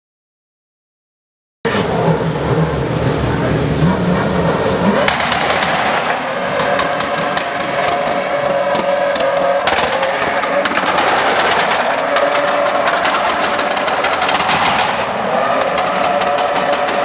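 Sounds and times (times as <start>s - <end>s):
engine revving high: 1.7s - 17.0s
tire squeal: 1.7s - 17.0s
fast crackling rattle: 5.1s - 17.0s.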